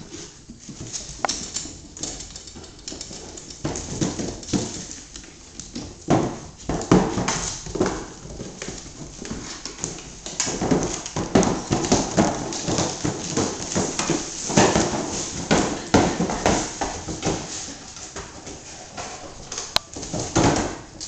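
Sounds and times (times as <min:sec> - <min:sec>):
dog claws clattering on wood: 0:00.9 - 0:05.8.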